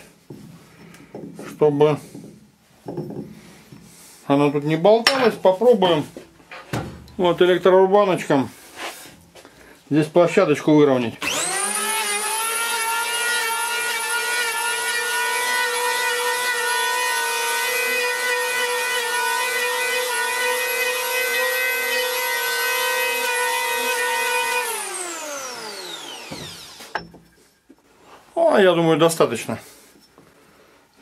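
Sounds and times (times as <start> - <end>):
electric planer whining: 11.2 - 27.0.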